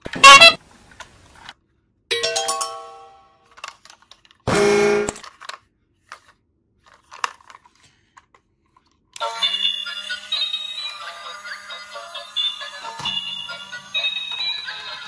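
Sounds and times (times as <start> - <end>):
toy electronic music: 2.1 - 3.4, 9.2 - 15.0.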